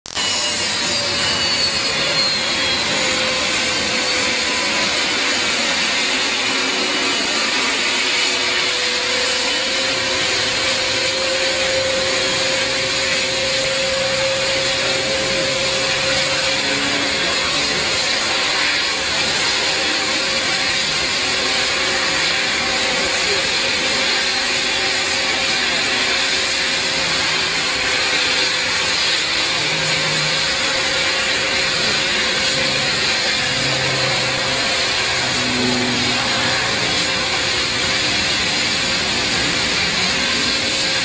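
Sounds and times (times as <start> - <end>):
jet engines running: 0.0 - 41.0
high tone falling in pitch: 0.1 - 5.8, 29.3 - 39.0.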